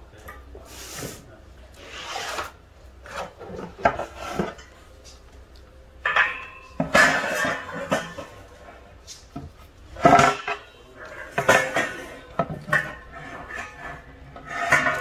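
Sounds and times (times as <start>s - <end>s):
board scraping against metal frame: 1.8s - 4.7s, 11.1s - 15.0s
metallic ring: 6.0s - 8.3s.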